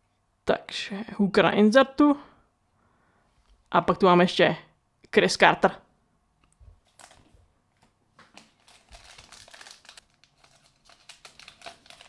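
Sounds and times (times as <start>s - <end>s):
foil wrapper crinkling: 6.8s - 7.3s, 8.2s - 12.0s.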